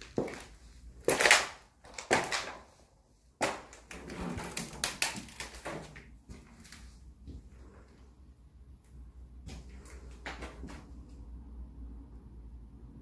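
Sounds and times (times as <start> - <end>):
footsteps crunching on debris: 0.0 - 2.8, 3.4 - 7.6.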